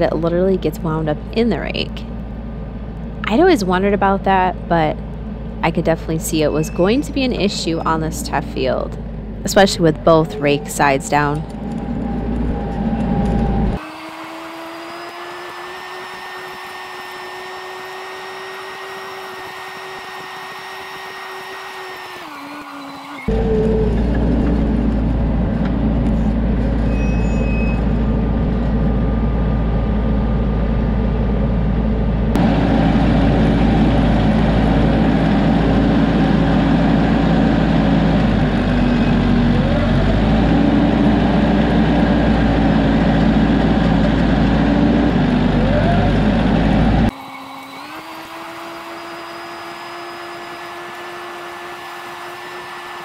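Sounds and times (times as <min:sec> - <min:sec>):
tractor diesel engine running: 0:00.0 - 0:53.0.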